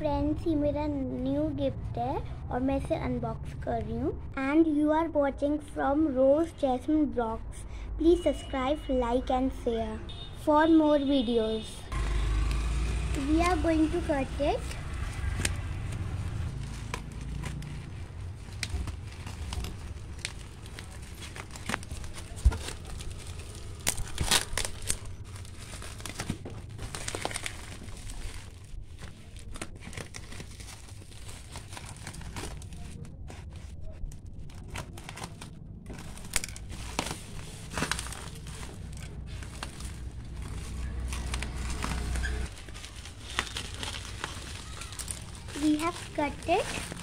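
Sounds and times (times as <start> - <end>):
plastic mailer crinkling and tearing: 11.9 - 47.0.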